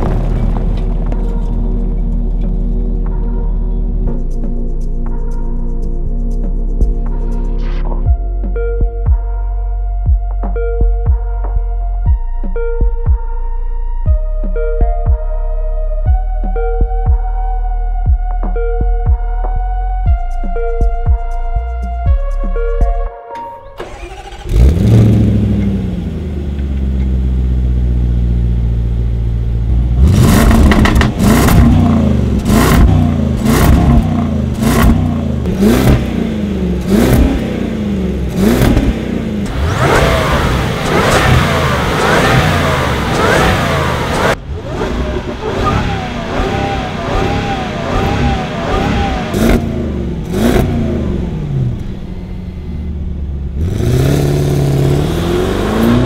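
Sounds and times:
exhaust cracks: 0.0 - 4.6, 23.6 - 56.0
car engine starting and revving: 0.0 - 4.7, 23.5 - 56.0.

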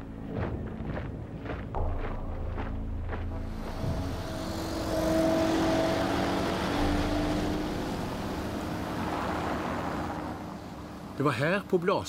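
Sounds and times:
vehicle engine hum: 0.0 - 12.0
traffic rushing: 2.6 - 12.0.

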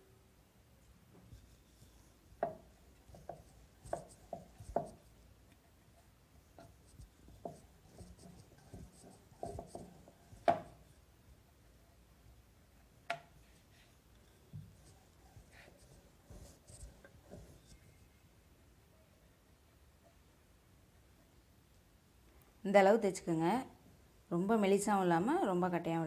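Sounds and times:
rolling pin rubbing dough: 1.2 - 11.1, 13.4 - 18.1.

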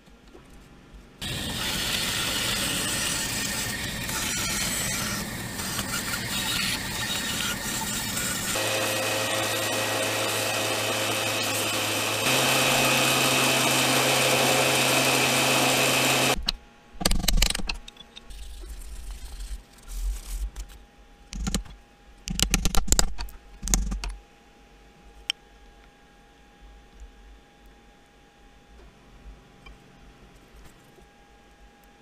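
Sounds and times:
bench sander humming: 1.2 - 16.4.

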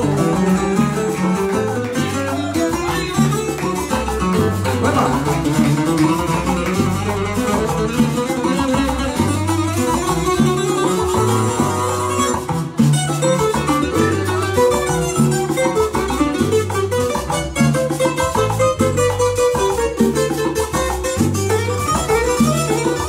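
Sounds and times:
low bass notes: 0.0 - 23.0
plucked string melody: 0.0 - 23.0.

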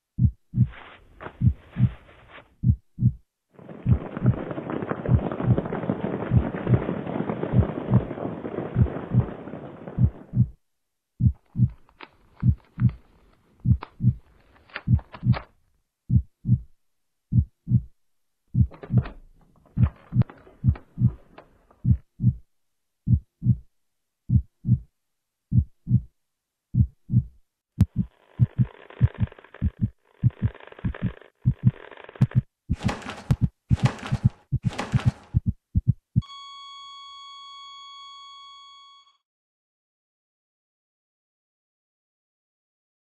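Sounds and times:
heartbeat thumps: 0.2 - 3.2, 3.8 - 4.5, 5.1 - 5.7, 6.3 - 6.9, 7.5 - 8.1, 8.7 - 9.4, 10.0 - 10.6, 11.2 - 11.8, 12.4 - 13.0, 13.6 - 14.2, 14.9 - 15.4, 16.1 - 19.2, 19.8 - 21.2, 21.8 - 23.7, 24.3 - 24.9, 25.5 - 36.2.

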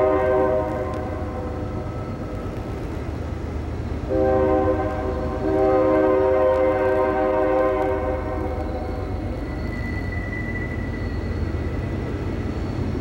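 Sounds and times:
locomotive air horn chord: 0.0 - 1.5, 4.1 - 8.5
train rumble: 0.0 - 13.0.

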